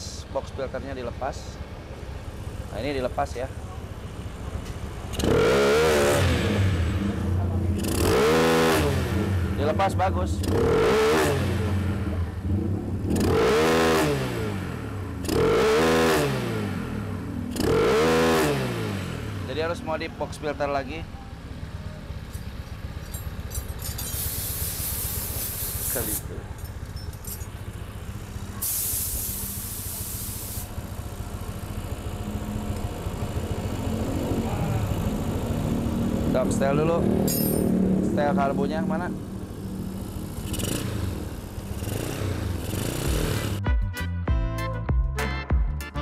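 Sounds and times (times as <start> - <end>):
scooter engine revving: 1.6 - 43.6
loud hiss: 24.0 - 26.3, 28.6 - 30.8.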